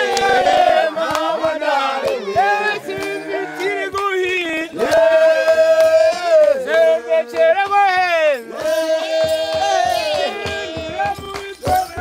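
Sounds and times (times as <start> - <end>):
group singing in harmony: 0.0 - 12.0.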